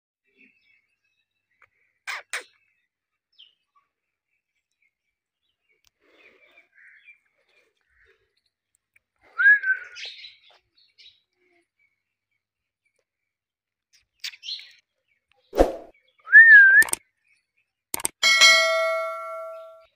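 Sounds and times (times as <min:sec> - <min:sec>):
brief sharp sounds: 0:15.6 - 0:15.9.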